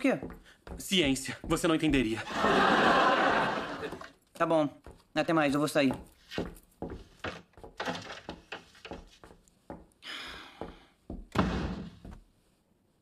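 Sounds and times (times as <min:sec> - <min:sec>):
footsteps across a room: 0:00.0 - 0:12.7
loud thud: 0:11.3 - 0:12.0.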